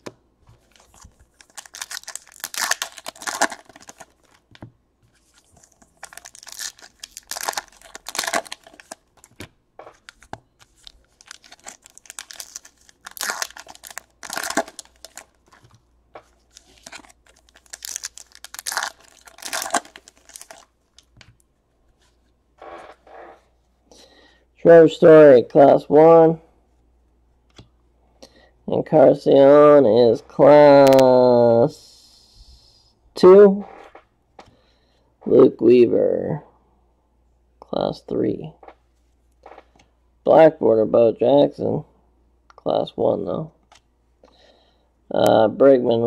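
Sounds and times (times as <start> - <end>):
foil wrappers tearing and crinkling: 0.6 - 4.4, 5.3 - 21.1.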